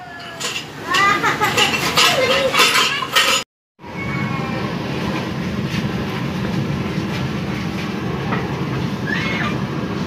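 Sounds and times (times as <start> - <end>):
rice-puffing cannon rumbling: 4.3 - 10.0.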